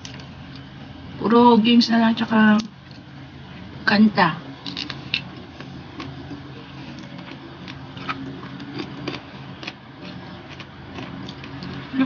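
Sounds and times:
steady low hum: 0:00.0 - 0:12.0
person chewing food: 0:05.2 - 0:11.9.

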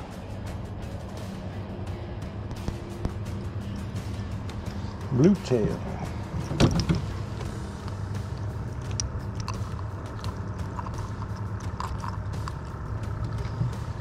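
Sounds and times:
low engine hum: 0:00.0 - 0:14.0.

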